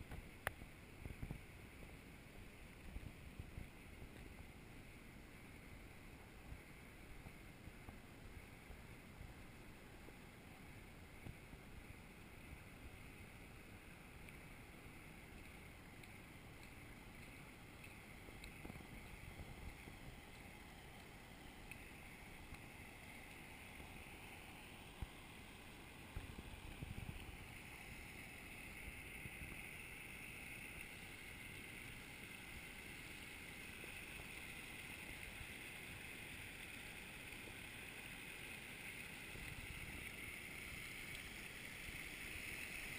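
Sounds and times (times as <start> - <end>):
floodwater rushing over path: 12.8 - 42.9.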